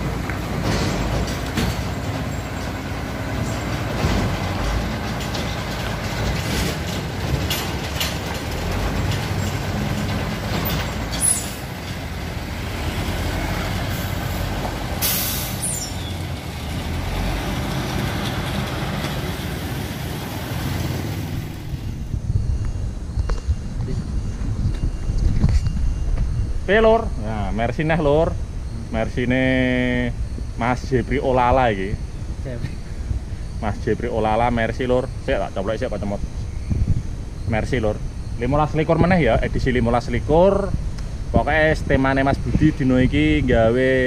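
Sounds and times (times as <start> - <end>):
diesel truck idling: 0.0 - 22.3.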